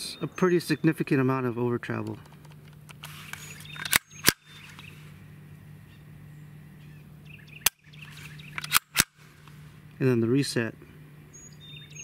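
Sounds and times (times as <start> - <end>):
metallic gun action clicks: 2.0 - 4.9, 8.5 - 9.2.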